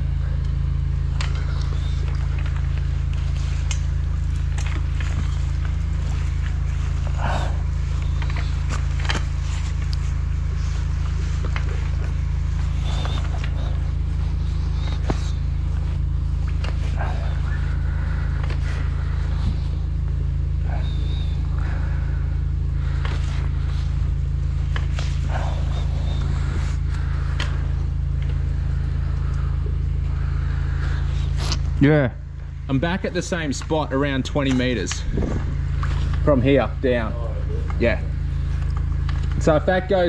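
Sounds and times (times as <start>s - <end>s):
drain jetter engine droning: 0.0s - 40.0s.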